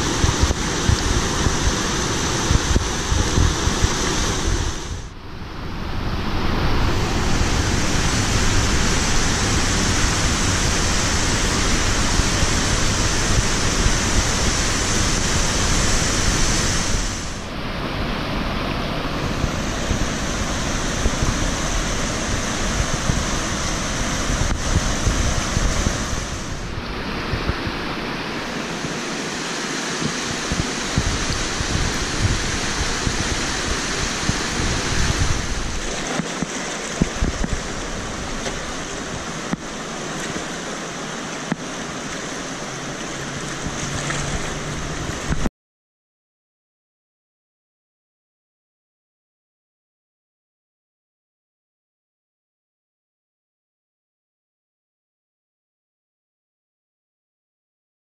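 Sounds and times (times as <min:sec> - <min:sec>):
whitewater rushing: 0:00.0 - 0:45.5.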